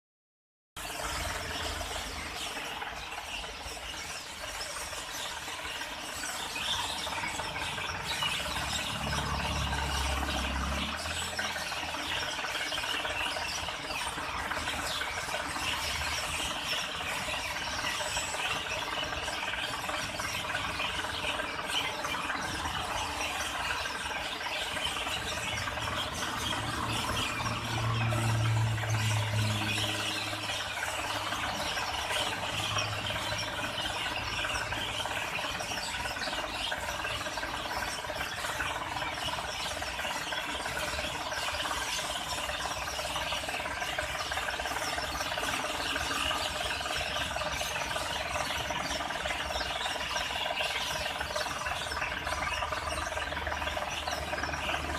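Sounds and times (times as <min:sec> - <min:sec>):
low engine rumble: 0:00.8 - 0:54.9.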